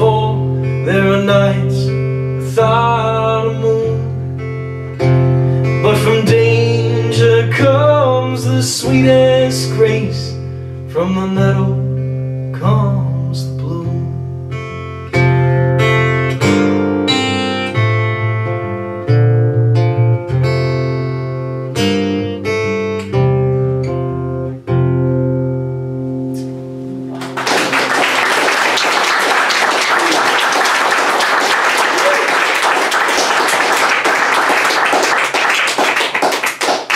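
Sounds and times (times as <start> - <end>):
acoustic guitar chords: 0.0 - 36.9
audience applauding: 27.1 - 36.9.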